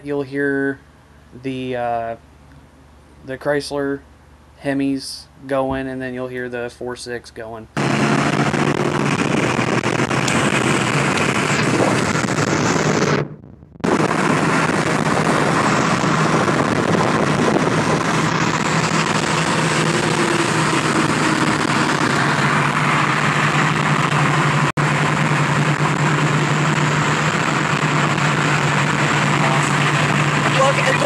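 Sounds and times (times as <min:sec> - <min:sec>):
engine drone: 0:00.0 - 0:31.0
wind and road noise in car: 0:07.8 - 0:31.0.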